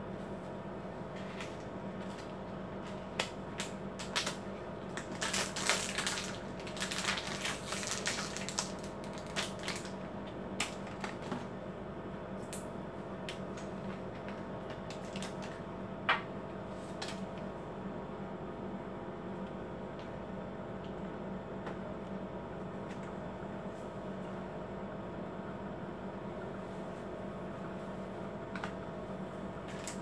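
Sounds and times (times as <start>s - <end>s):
plastic crinkling: 1.3s - 10.0s.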